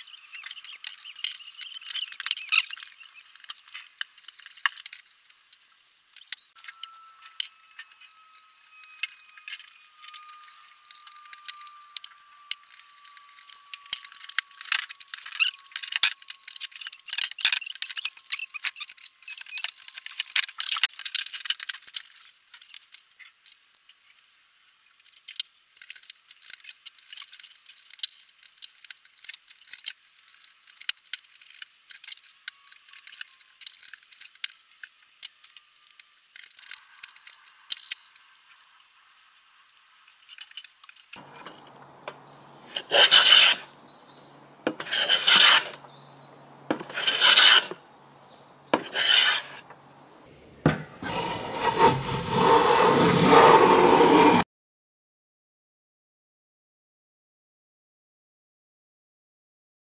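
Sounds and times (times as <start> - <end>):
small metal parts clinking: 0.1 - 6.8
screwdriver turning screws: 41.2 - 43.7, 44.7 - 45.8, 46.7 - 47.8, 48.8 - 49.7.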